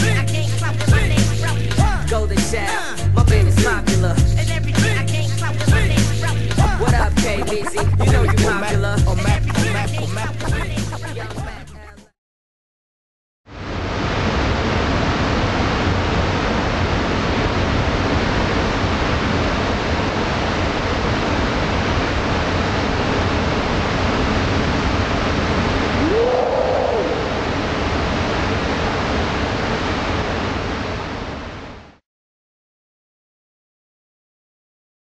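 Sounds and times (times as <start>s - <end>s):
waterfall rushing: 6.6s - 11.3s.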